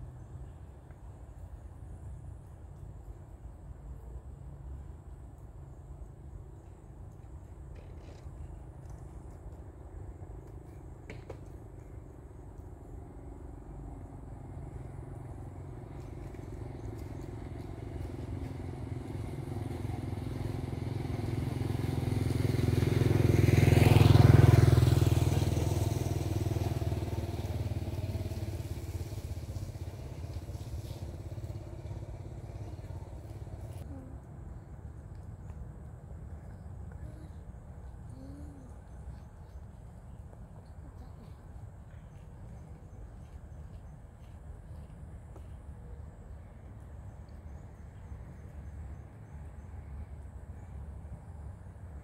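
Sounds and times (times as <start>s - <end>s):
vehicle driving past: 12.9s - 34.0s.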